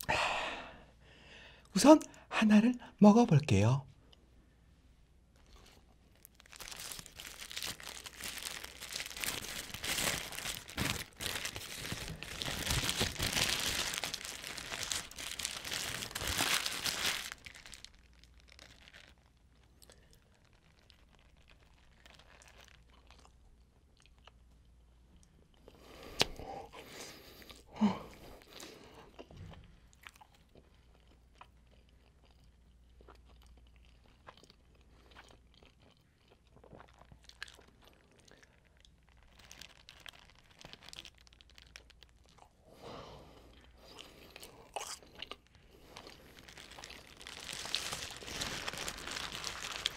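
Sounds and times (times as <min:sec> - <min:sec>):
paper wrapper crinkling: 0:05.5 - 0:23.1, 0:38.7 - 0:42.4, 0:45.8 - 0:49.9.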